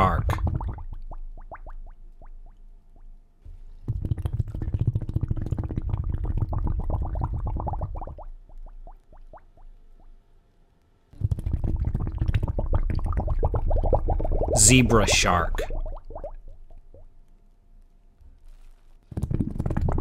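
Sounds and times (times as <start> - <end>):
underwater bubbling: 0.3 - 2.6, 3.9 - 10.2, 11.2 - 17.1, 19.2 - 20.0.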